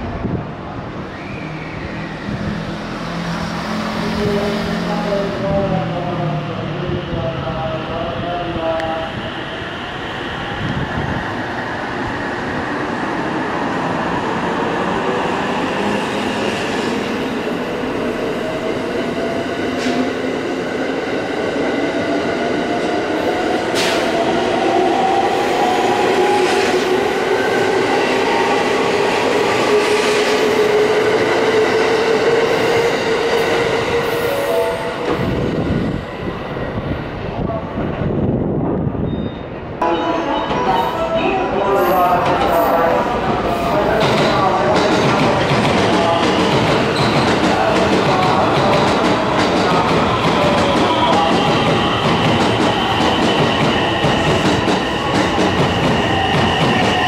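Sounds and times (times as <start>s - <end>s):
rumble of train wheels: 42.2s - 57.0s.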